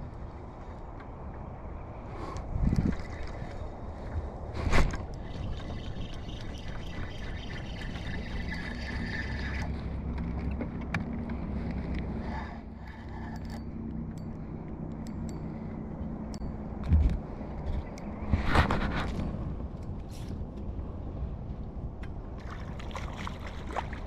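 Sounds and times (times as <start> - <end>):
wind buffeting microphone: 0.0 - 12.3.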